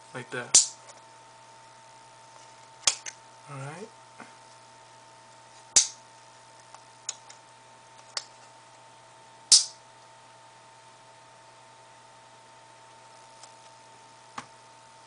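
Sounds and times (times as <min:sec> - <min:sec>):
faint steady hum: 0:00.0 - 0:15.0
plastic holster clicks and snaps: 0:02.9 - 0:03.2, 0:05.8 - 0:06.0, 0:09.5 - 0:09.8.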